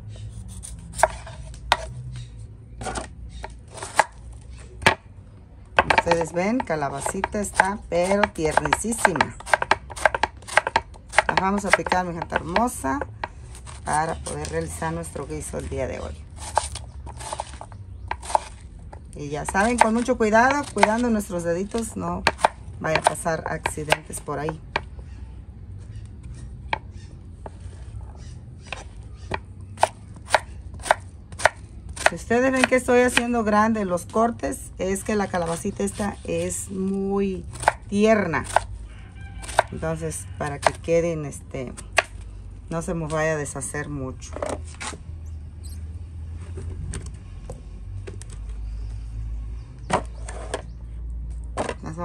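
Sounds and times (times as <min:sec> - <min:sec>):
knife chopping on wooden board: 0:00.6 - 0:01.9, 0:05.8 - 0:14.6, 0:19.5 - 0:24.9, 0:28.7 - 0:33.3, 0:37.5 - 0:37.8, 0:39.4 - 0:39.7.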